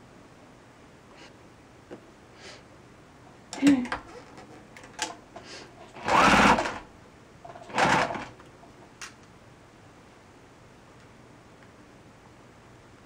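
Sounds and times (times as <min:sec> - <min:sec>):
sewing machine stitching: 0:05.9 - 0:06.8, 0:07.6 - 0:08.4.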